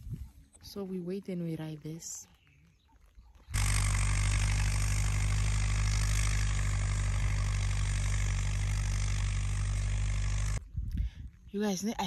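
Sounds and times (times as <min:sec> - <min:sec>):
engine idling: 0:03.5 - 0:10.6.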